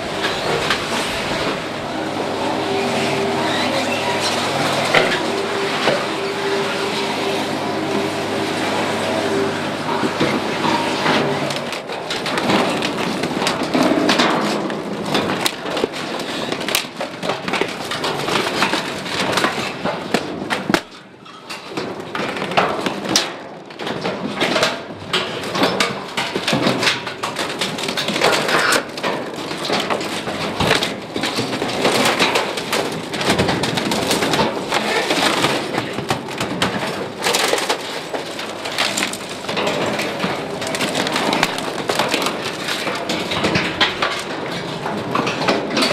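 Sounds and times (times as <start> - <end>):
roller crushing furniture: 0.0 - 45.9
crunching and sharp cracks: 10.0 - 45.9.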